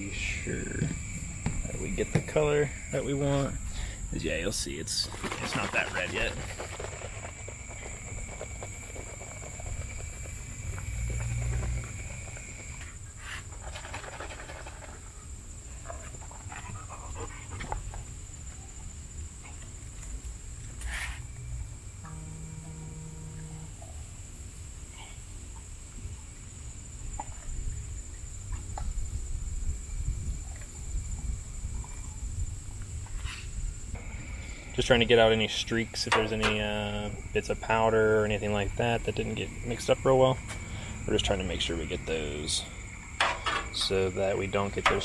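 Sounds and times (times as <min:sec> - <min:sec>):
high-pitched whine: 0:00.0 - 0:05.0, 0:21.4 - 0:24.3
wind rumbling on microphone: 0:27.4 - 0:34.9
metal tongs knocking a pot: 0:44.8 - 0:45.0.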